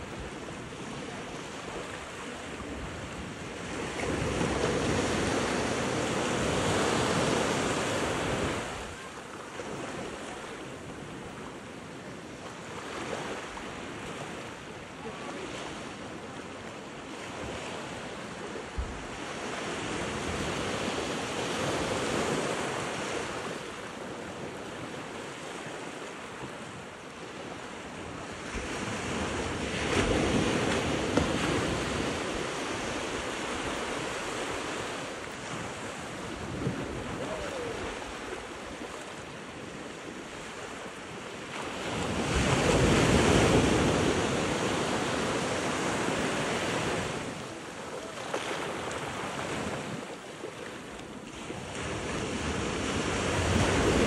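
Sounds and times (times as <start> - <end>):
waves washing over sand and rocks: 0.0 - 54.0
wind buffeting microphone: 27.9 - 47.6.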